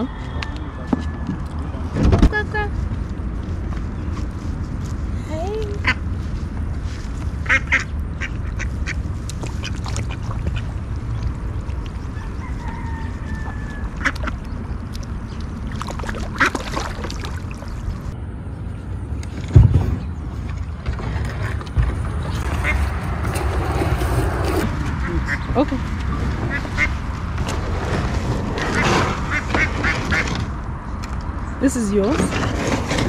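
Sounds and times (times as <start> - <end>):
low rumble: 0.0 - 31.6
ducks quacking: 7.4 - 9.0, 22.5 - 23.0, 28.6 - 30.4.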